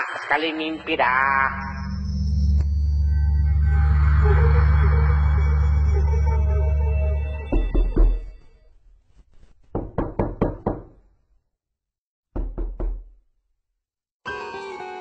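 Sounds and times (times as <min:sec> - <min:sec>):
music: 0:02.6 - 0:08.3, 0:14.2 - 0:15.0
knocking: 0:09.7 - 0:11.0, 0:12.4 - 0:13.2.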